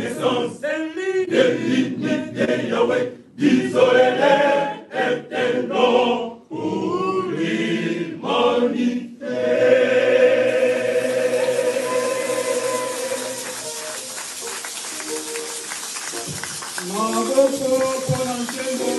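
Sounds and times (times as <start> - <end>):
male choir singing a cappella: 0.0 - 13.6.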